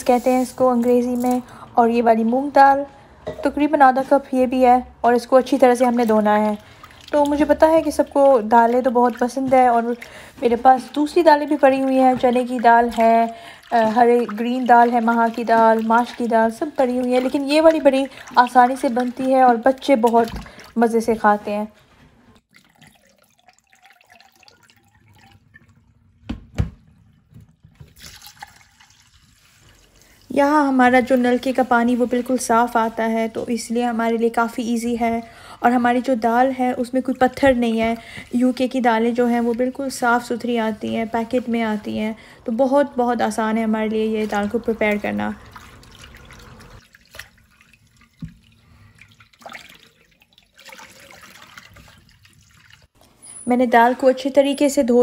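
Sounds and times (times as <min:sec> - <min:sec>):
water and lentils splashing: 0:04.0 - 0:21.5, 0:22.4 - 0:53.0
tap water running into bowl: 0:22.5 - 0:30.0, 0:44.3 - 0:53.0.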